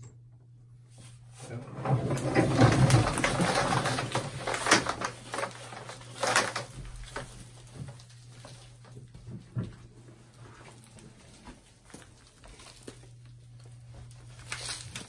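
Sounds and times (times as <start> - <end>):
steady low hum: 0.0 - 15.0
plastic pipe rubbing and scraping: 1.4 - 9.7.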